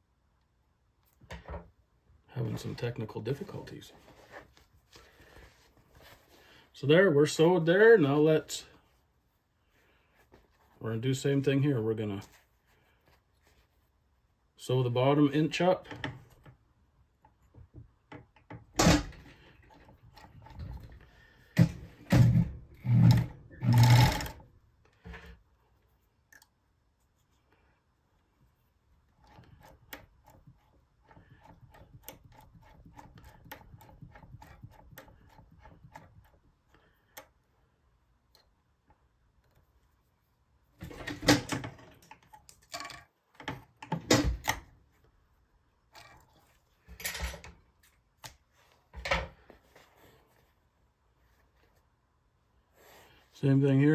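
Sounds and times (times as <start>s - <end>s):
sewing machine knocks and clatters: 21.6s - 24.4s
rapid sewing machine stitching: 22.9s - 24.4s.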